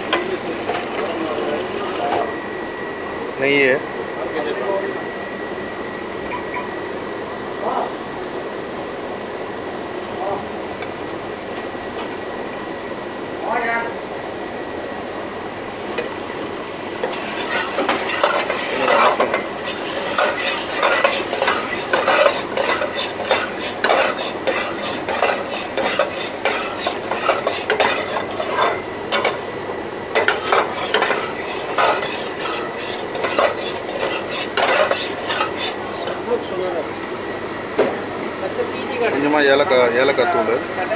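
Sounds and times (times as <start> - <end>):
ghee sizzling: 15.6 - 40.9
metal spatula scraping a pot: 17.0 - 29.4, 30.1 - 36.2.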